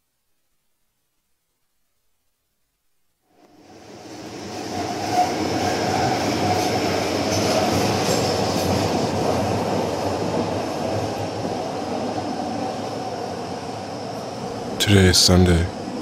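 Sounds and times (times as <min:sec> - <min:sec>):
train rumbling on rails: 0:03.6 - 0:16.0.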